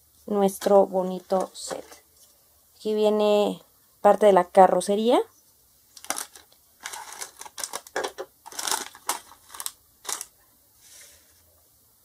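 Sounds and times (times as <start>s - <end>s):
plastic bricks rattling: 6.0s - 10.3s
plastic bags crinkling: 6.0s - 10.4s.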